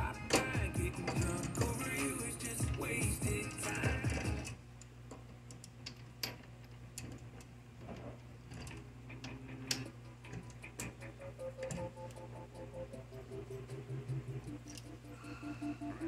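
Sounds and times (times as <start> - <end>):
background music: 0.0 - 4.6, 9.6 - 16.0
low steady hum: 0.0 - 16.0.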